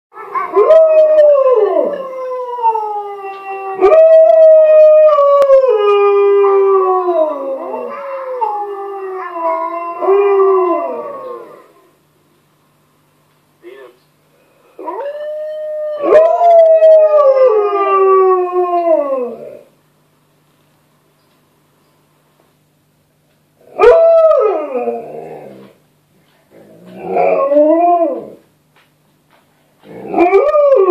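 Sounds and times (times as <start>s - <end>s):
dog howling: 0.2s - 11.8s, 14.8s - 19.7s, 23.7s - 25.8s, 26.7s - 28.4s, 30.0s - 30.9s
recorded dog howl from speaker: 0.2s - 11.8s, 14.8s - 19.7s, 23.7s - 25.7s, 27.0s - 28.4s, 30.0s - 30.9s.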